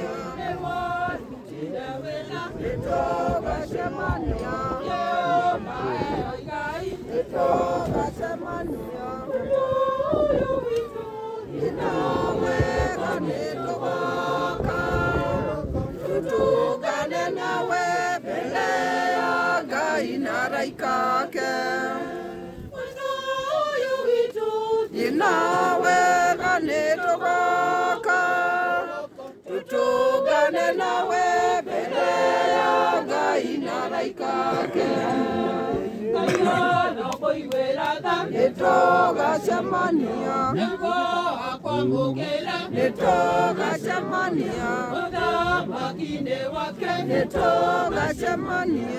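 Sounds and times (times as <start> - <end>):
crowd singing unaccompanied: 0.0 - 48.9.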